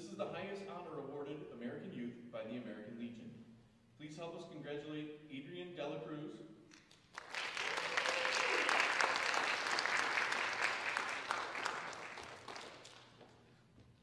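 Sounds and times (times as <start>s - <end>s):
audience applauding: 6.7s - 13.5s.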